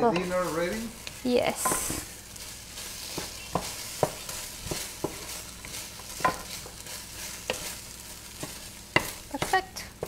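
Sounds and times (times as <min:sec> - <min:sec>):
frying sizzle: 0:00.0 - 0:10.0
wooden spoon knocking on pan: 0:01.5 - 0:02.0, 0:03.1 - 0:06.8, 0:07.4 - 0:10.0.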